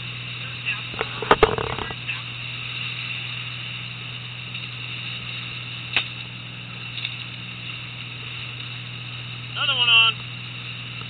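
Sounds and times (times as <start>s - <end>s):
boat engine running: 0.0s - 11.0s
wind: 0.0s - 11.0s.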